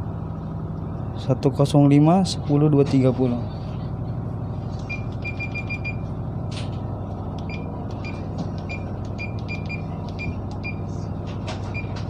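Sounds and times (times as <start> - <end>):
low engine hum: 0.0 - 12.0
short high key beeps: 4.9 - 6.0.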